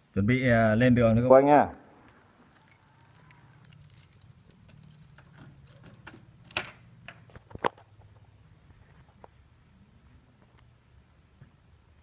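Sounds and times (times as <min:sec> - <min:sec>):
faint low hum: 0:00.0 - 0:12.0
fishing gear clicks and knocks: 0:02.5 - 0:07.8.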